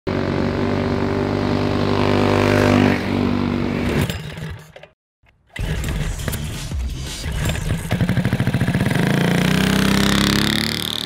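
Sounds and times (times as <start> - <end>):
go-kart engines running: 7.6 - 11.0.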